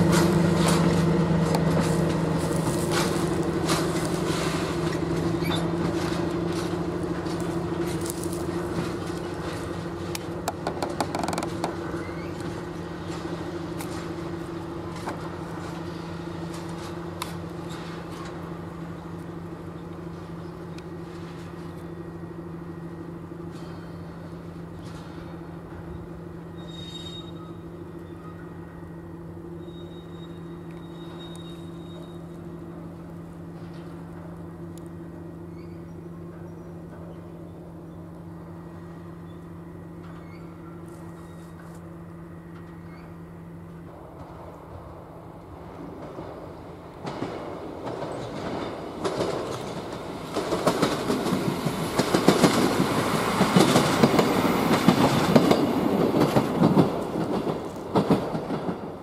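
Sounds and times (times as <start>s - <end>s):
locomotive engine drone: 0.0s - 59.0s
high squeal: 26.5s - 28.3s, 29.6s - 32.4s.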